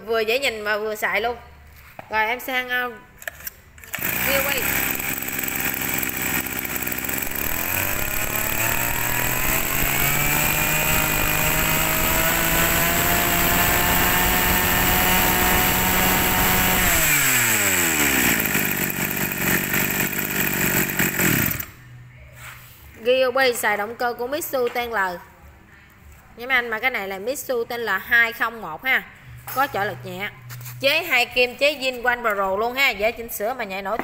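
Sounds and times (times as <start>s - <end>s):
brush cutter engine revving: 3.3s - 21.8s.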